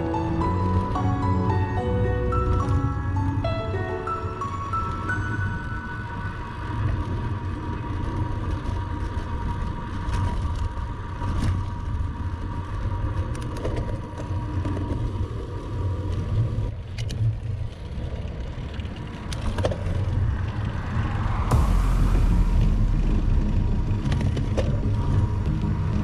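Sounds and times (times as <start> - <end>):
faint held tone: 0.0 - 7.0
road noise from bicycle tyres: 0.0 - 26.0
wind noise on microphone: 4.8 - 26.0.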